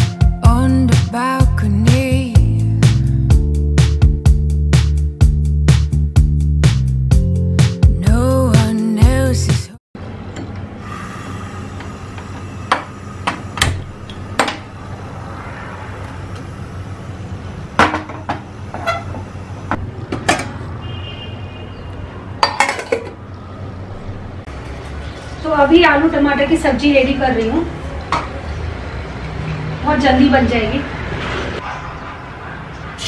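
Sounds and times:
steady low hum: 0:10.7 - 0:15.4.

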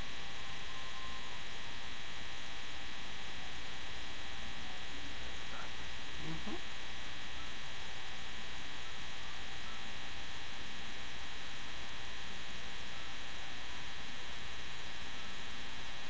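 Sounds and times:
electrical buzz and hiss: 0:00.0 - 0:07.4.

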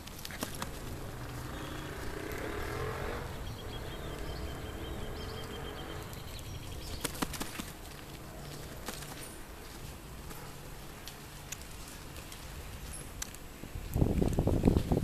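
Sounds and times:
car passing: 0:00.0 - 0:11.4.

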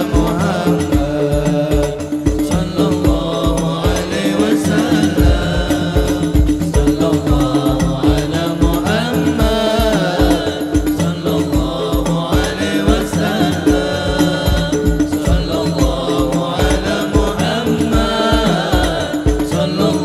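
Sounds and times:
men singing together: 0:00.0 - 0:20.0
frame drum hits: 0:04.9 - 0:08.2, 0:13.6 - 0:16.8
bass drum strokes: 0:05.0 - 0:07.0, 0:14.0 - 0:16.1.

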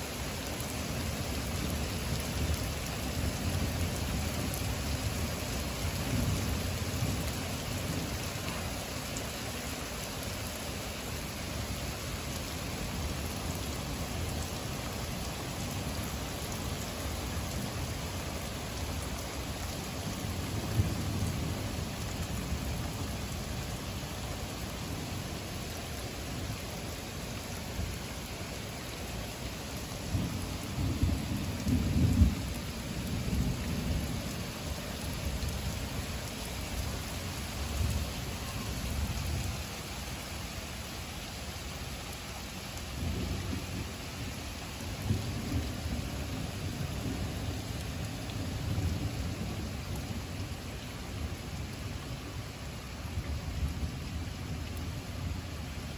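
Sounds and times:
heavy rain: 0:00.0 - 0:55.9
low rolls of thunder: 0:30.0 - 0:35.9, 0:42.9 - 0:44.0, 0:44.9 - 0:50.3.

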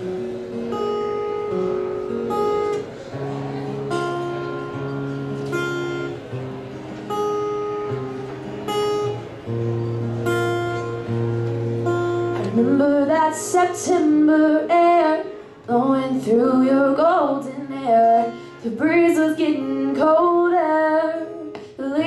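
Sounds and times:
acoustic guitars strumming chords: 0:00.0 - 0:22.0.

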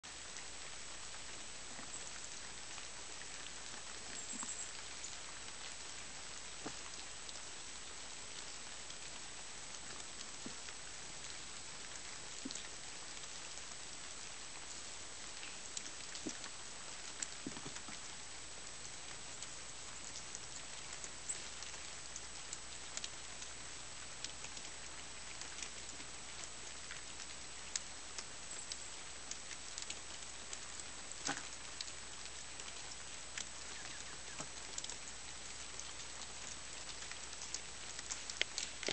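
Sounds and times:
freezing rain hissing: 0:00.0 - 0:38.9
ice pellets ticking and pattering: 0:13.5 - 0:38.9.

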